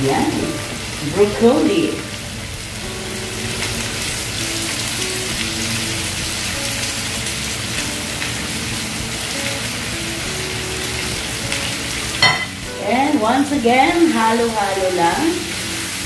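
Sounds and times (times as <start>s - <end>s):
food sizzling in a pan: 0.0s - 16.0s
soft background music: 0.0s - 16.0s.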